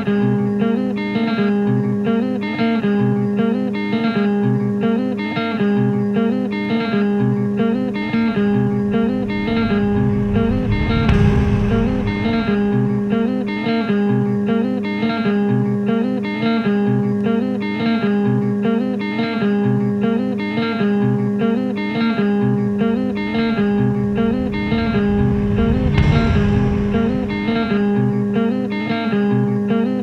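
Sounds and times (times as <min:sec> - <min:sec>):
held low notes: 0:07.8 - 0:13.6, 0:22.6 - 0:28.4.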